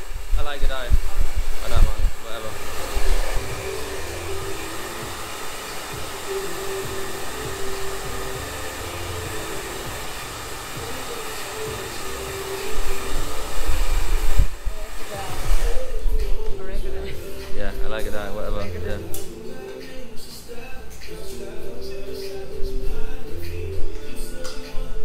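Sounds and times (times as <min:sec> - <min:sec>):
hair dryer blowing: 0:00.0 - 0:19.0.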